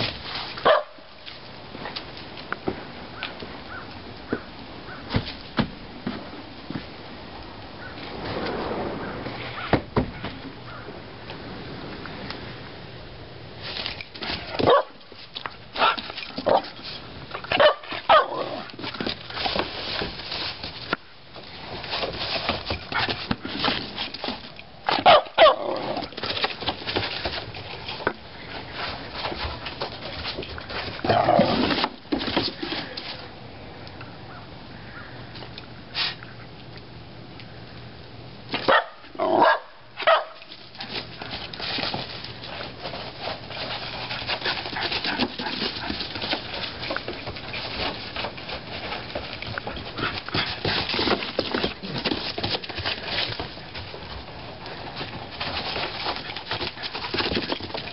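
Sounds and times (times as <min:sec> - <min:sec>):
dog barking: 0:00.6 - 0:01.0, 0:14.6 - 0:15.0, 0:17.6 - 0:18.6, 0:25.0 - 0:25.6, 0:38.7 - 0:40.4.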